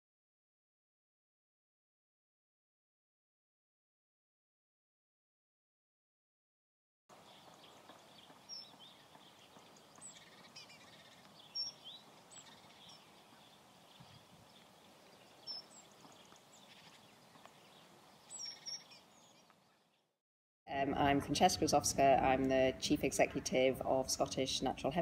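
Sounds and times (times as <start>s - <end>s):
small birds chirping: 7.1s - 20.1s.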